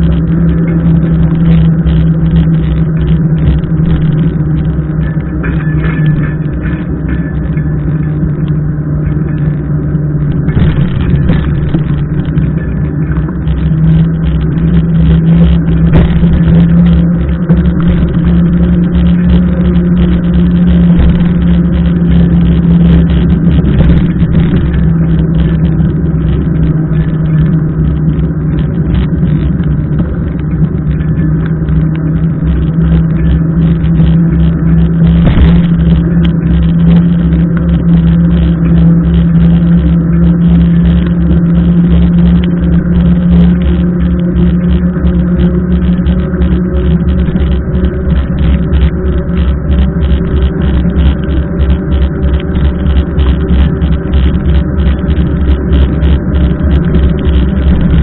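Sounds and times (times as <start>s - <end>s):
constant low hum: 0.0s - 58.0s
wind rumble: 0.0s - 58.0s
rain: 35.2s - 58.0s.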